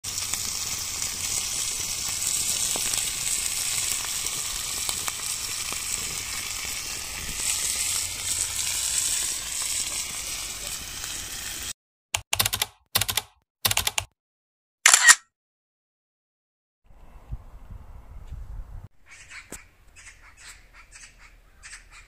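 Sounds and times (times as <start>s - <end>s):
steak sizzling in butter: 0.0s - 11.8s.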